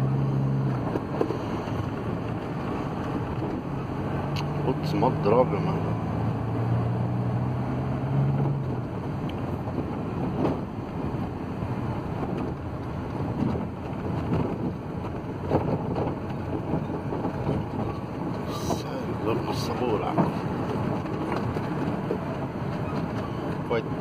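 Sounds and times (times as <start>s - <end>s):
diesel van engine: 0.0s - 24.0s
van body knocking and rattling: 0.8s - 3.8s, 8.4s - 24.0s.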